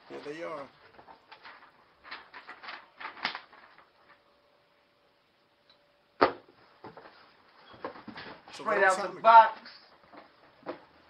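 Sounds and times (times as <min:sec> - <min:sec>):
cardboard package rustling: 0:00.8 - 0:04.2.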